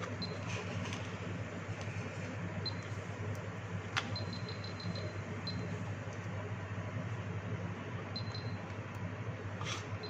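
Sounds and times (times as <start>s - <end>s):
steady low hum: 0.0s - 10.0s
continuity buzzer short high beeps: 4.2s - 5.7s.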